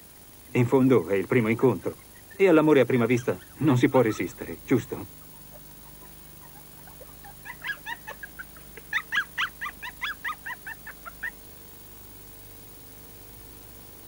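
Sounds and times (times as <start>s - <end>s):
puppies yapping: 1.8s - 11.5s.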